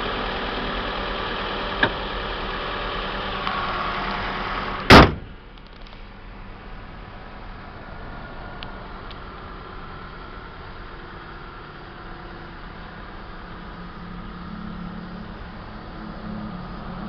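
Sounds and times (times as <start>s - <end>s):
car engine idling: 0.0s - 17.0s
car bonnet slamming shut: 4.8s - 5.4s.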